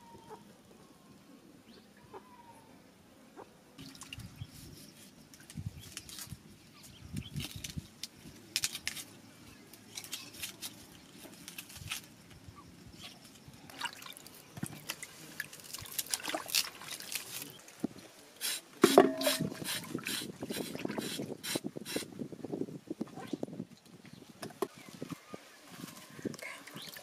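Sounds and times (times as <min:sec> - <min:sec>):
metal pot ringing: 0:18.8 - 0:19.5.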